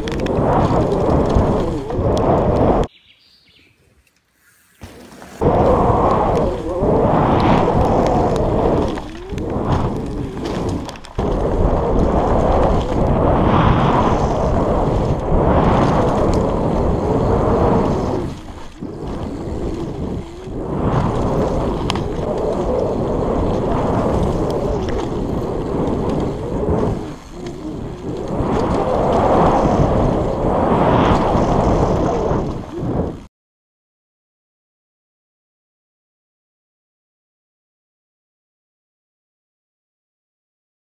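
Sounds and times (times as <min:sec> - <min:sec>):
bike tyre noise: 0:00.0 - 0:02.9, 0:04.2 - 0:33.3
wind rushing over microphone: 0:00.0 - 0:02.9, 0:05.4 - 0:33.3
bike rattle: 0:07.8 - 0:29.3.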